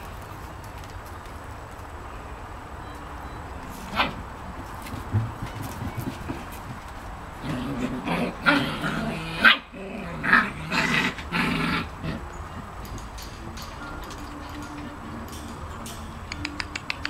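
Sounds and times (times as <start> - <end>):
puppies growling and barking: 3.8 - 16.0.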